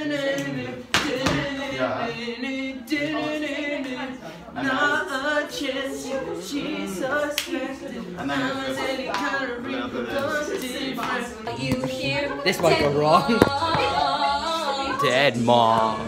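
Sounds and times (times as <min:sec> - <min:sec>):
person singing with vibrato: 0:00.0 - 0:16.0.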